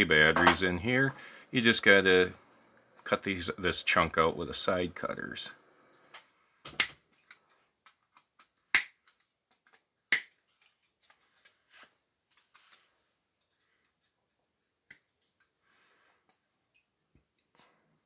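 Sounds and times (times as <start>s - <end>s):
side cutters snapping circuit board: 10.1s - 10.3s.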